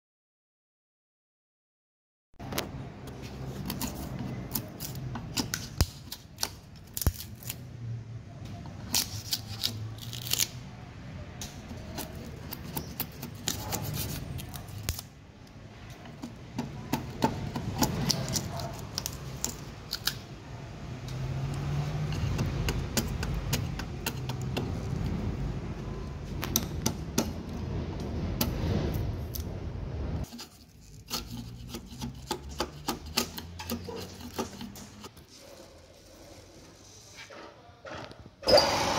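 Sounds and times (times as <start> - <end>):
chisel scraping bark off log: 21.6 - 25.2, 30.3 - 35.5.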